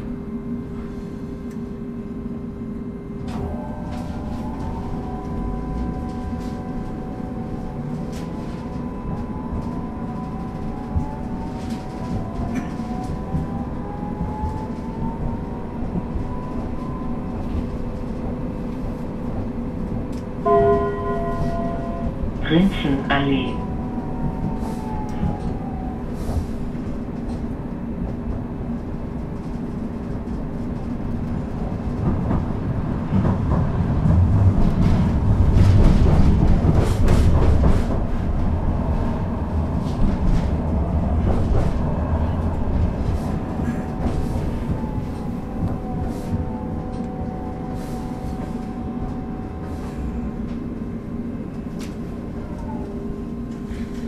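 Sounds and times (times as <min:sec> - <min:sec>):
electrical equipment hum: 0:00.0 - 0:31.2.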